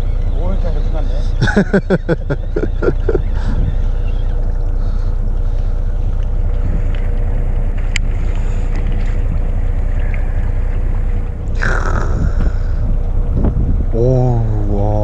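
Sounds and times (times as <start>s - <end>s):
boat engine rumbling: 0.0s - 15.0s
wind on microphone: 2.7s - 4.4s, 6.4s - 15.0s.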